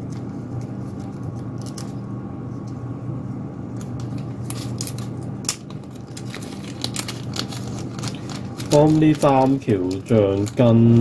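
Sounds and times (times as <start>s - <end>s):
steady low hum: 0.0s - 11.0s
plastic bag crinkling: 3.9s - 11.0s.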